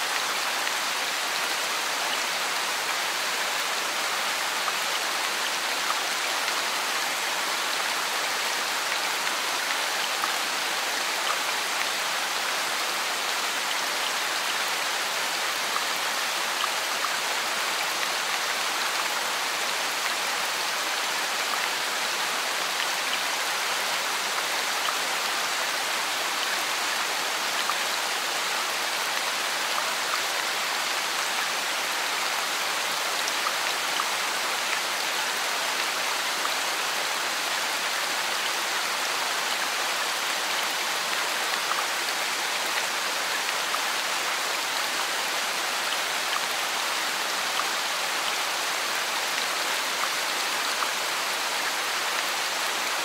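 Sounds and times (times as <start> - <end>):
steady rain falling: 0.0 - 53.0.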